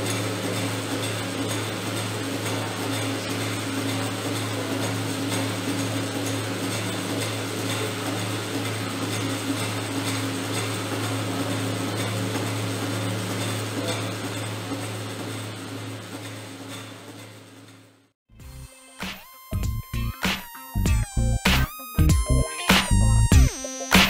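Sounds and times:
low mechanical hum: 0:00.0 - 0:18.7.

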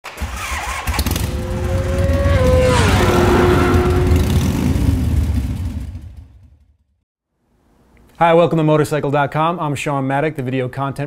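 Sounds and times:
motorcycle engine revving: 0:00.2 - 0:06.6.

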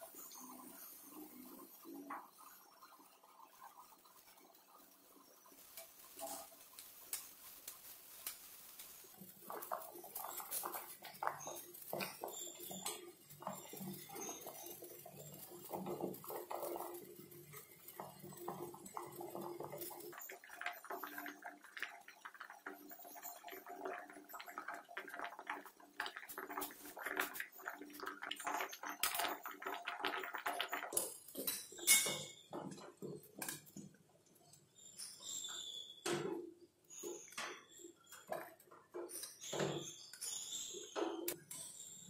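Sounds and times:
bubbling water: 0:09.2 - 0:33.4.

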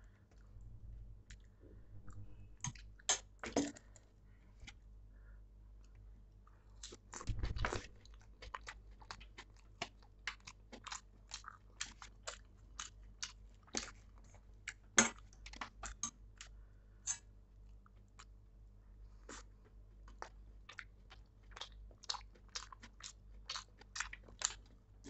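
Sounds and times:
wet chewing: 0:06.8 - 0:16.5, 0:20.1 - 0:24.8.

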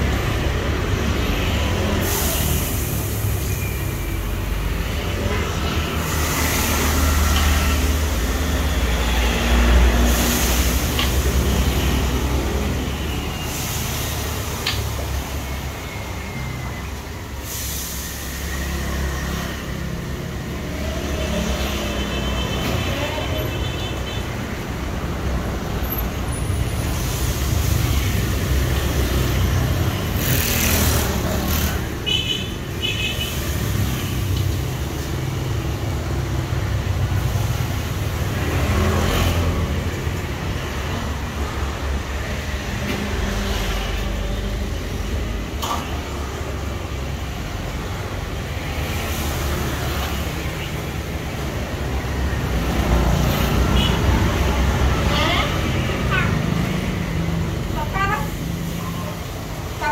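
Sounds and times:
street traffic rumble: 0:00.0 - 0:59.9
vehicle passing: 0:26.8 - 0:32.0.

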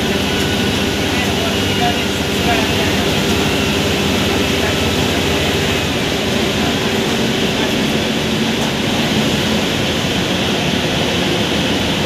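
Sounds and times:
bus diesel engine running: 0:00.0 - 0:12.0
road noise: 0:00.0 - 0:12.0.

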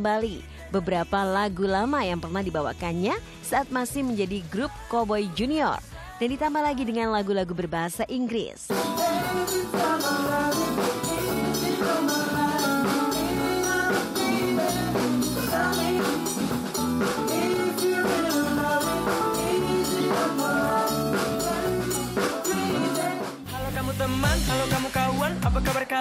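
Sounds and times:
man singing into a microphone: 0:08.7 - 0:16.4, 0:17.2 - 0:26.0
drum kit beat: 0:08.7 - 0:26.0
electric guitar: 0:08.7 - 0:26.0.

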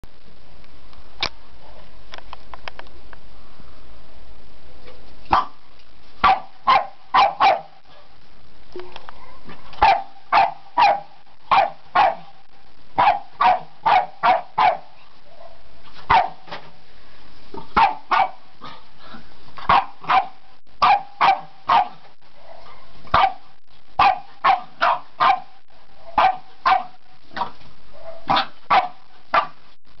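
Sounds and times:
puppy barking: 0:05.3 - 0:05.6, 0:06.2 - 0:07.8, 0:09.8 - 0:12.3, 0:13.0 - 0:15.0, 0:16.1 - 0:16.5, 0:17.8 - 0:18.4, 0:19.6 - 0:29.6.

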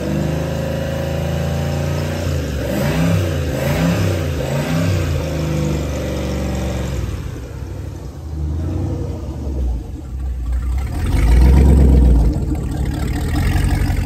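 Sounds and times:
marine engines running: 0:06.3 - 0:14.0.

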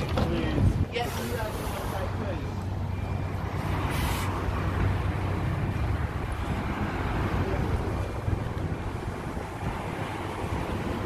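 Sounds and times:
bus engine idling: 0:00.0 - 0:11.0
short hiss: 0:03.9 - 0:04.4.

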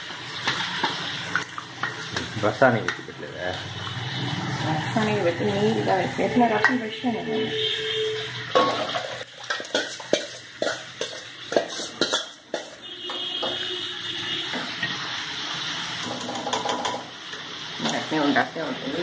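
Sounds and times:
steel spoon scraping steel bowl: 0:07.5 - 0:13.8.

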